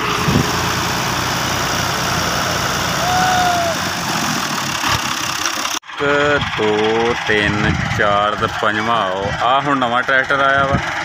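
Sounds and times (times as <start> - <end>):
diesel tractor engines running: 0.0 - 11.0
short high call: 3.0 - 3.8.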